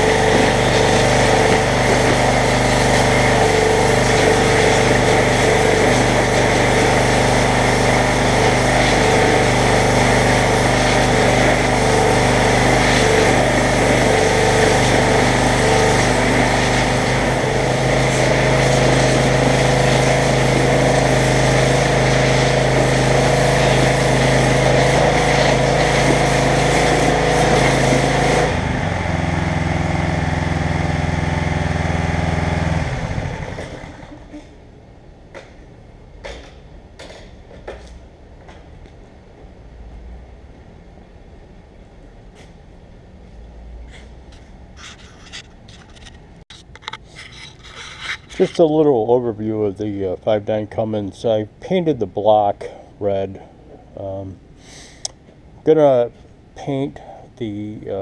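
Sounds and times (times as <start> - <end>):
water jet hissing: 0.0 - 29.0
pressure washer engine running: 0.0 - 34.6.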